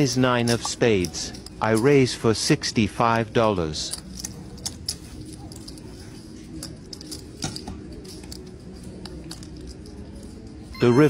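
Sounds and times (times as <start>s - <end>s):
poker chips clicking: 3.8s - 10.6s.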